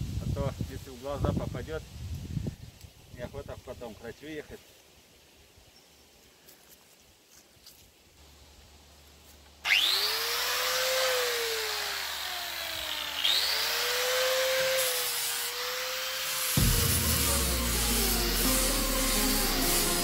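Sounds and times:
angle grinder grinding wood: 9.7s - 20.0s.

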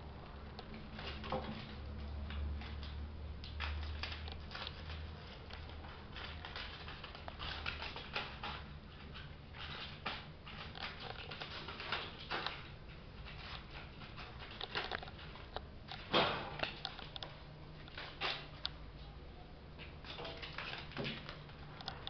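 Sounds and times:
low steady hum: 0.0s - 22.0s
toy skittering across floor: 2.6s - 15.6s.

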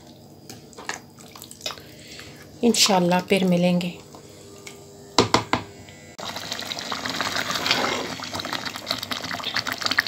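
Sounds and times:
thick stew bubbling in a pot: 6.2s - 10.0s.

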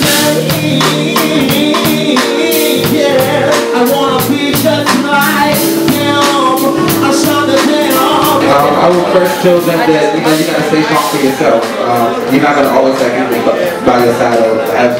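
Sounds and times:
saxophone: 0.0s - 10.2s
man singing: 0.0s - 12.6s
steady drum beat: 0.0s - 14.8s
live soul band playing: 0.0s - 14.9s.

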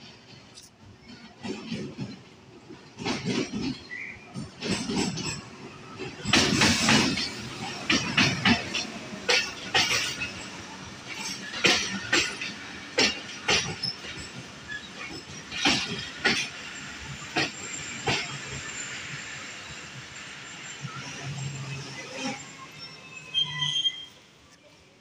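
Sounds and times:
train wheels clacking over rail joints: 0.0s - 19.8s
train running rumble: 0.0s - 23.0s.

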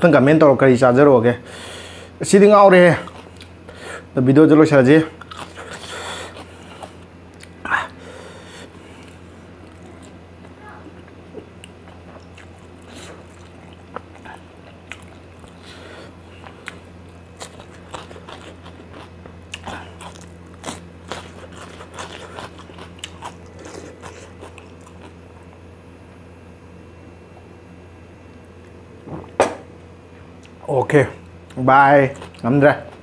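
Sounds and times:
steady low hum: 0.0s - 33.0s
person chewing noodles: 3.0s - 3.8s, 5.2s - 25.6s, 32.1s - 33.0s.

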